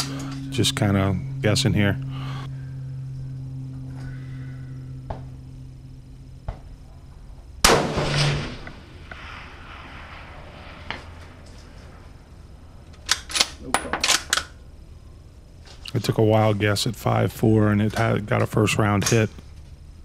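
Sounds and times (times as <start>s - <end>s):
low steady hum: 0.0s - 20.0s
rifle shot: 7.6s - 11.1s.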